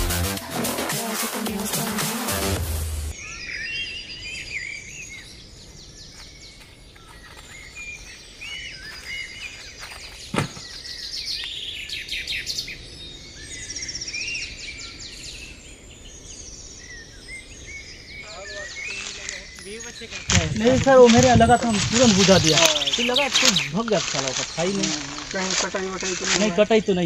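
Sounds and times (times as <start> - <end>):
electronic music: 0.0 - 3.1
forest birds chirping: 3.1 - 27.0
sharp knock: 10.4 - 10.6.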